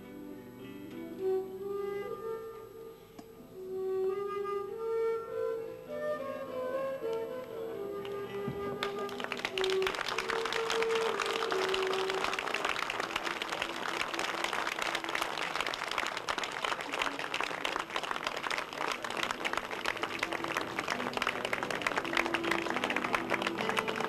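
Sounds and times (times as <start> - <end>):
soft held music notes: 0.0 - 9.2
audience applauding: 8.8 - 24.0.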